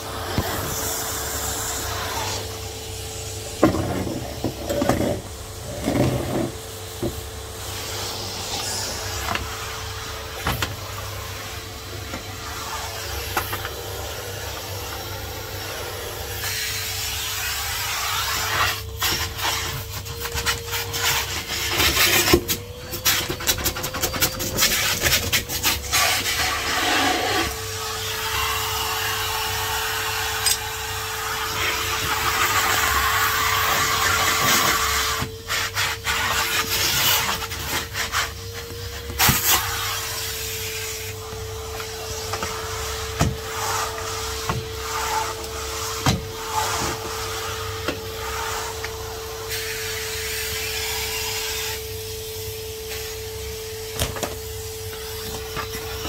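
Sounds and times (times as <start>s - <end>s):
vacuum cleaner motor whine: 0.0s - 56.0s
vacuum hose scraping on floor: 0.0s - 56.0s.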